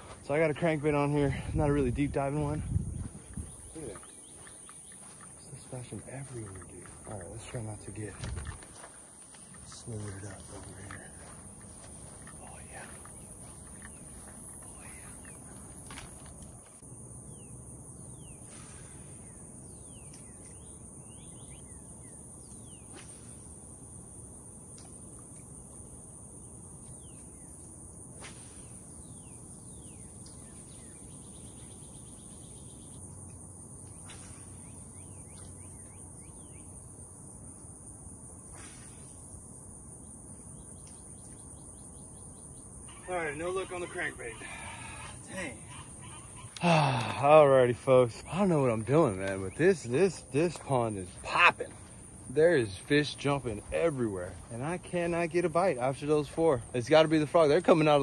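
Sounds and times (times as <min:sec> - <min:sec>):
insect drone: 0:00.0 - 0:58.0
bird chirps: 0:02.8 - 0:08.5, 0:17.3 - 0:23.1, 0:28.8 - 0:37.0, 0:40.4 - 0:47.2.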